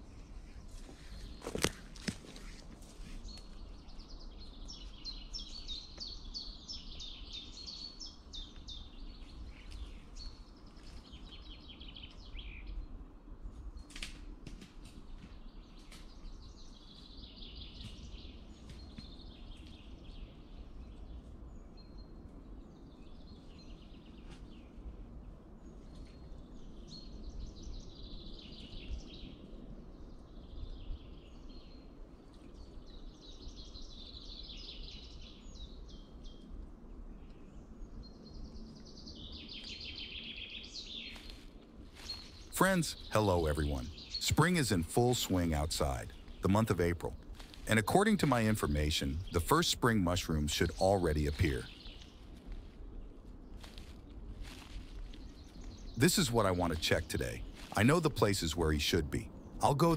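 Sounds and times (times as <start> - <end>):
songbirds singing: 0.0 - 59.9
steady low rumble: 36.2 - 59.9.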